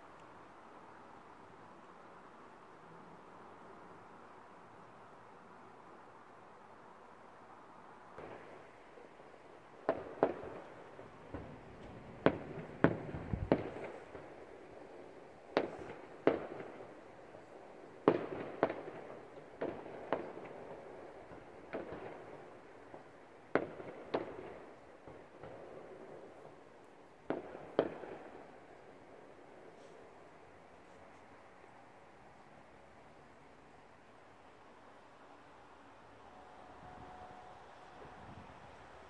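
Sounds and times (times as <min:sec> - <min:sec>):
fireworks bangs with echo: 0:09.8 - 0:14.4, 0:15.5 - 0:17.0, 0:18.0 - 0:26.5, 0:27.2 - 0:28.6.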